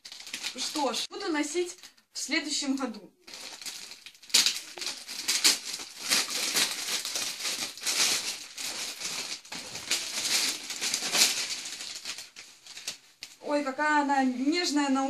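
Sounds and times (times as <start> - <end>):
plastic bag crinkling: 0.0 - 1.1, 3.2 - 13.4
scissors snipping plastic bag: 3.3 - 13.4.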